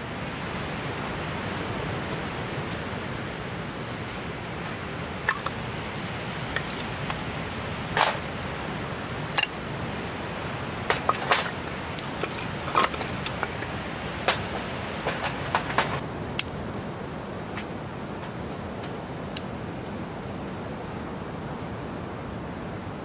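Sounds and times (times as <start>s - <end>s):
steady background rush: 0.0s - 19.6s
firewood clunking in metal bowl: 5.2s - 5.6s, 9.1s - 9.6s, 10.9s - 16.0s.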